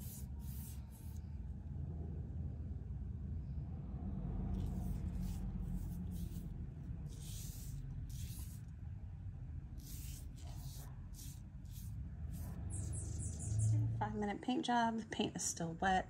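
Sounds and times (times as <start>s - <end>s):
paint brush swishes: 0.0s - 1.2s, 4.6s - 8.7s, 9.8s - 13.8s
steady low rumble: 0.0s - 14.4s.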